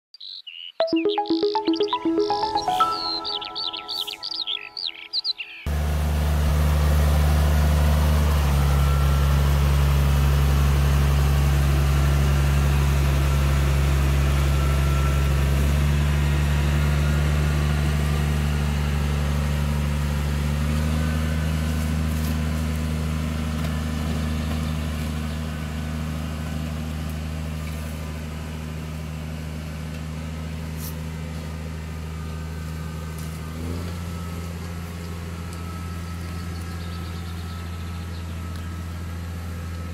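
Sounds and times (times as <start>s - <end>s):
tractor engine droning: 4.7s - 28.5s.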